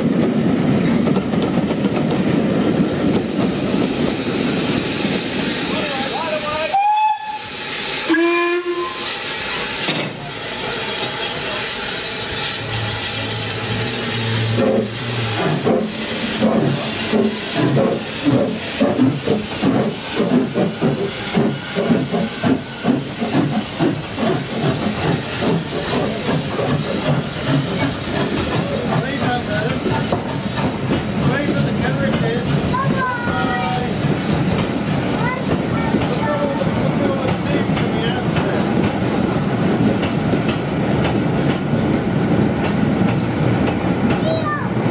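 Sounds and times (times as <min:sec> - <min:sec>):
escaping steam: 0:00.1 - 0:44.9
steam locomotive whistles: 0:05.0 - 0:30.6.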